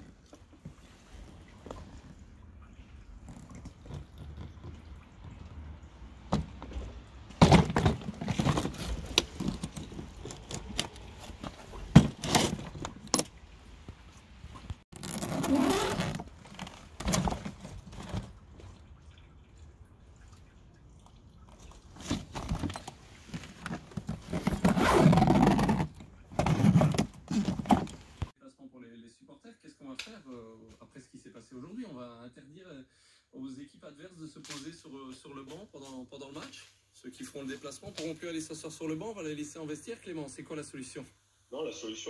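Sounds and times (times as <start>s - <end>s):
plastic suitcase knocks and clicks: 6.3s - 10.8s, 11.9s - 13.3s
scraping and rustling: 6.3s - 18.4s, 21.8s - 28.3s.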